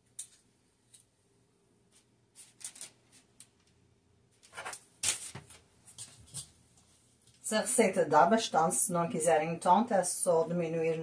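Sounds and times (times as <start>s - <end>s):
paper rustling: 1.9s - 3.4s, 4.4s - 6.6s.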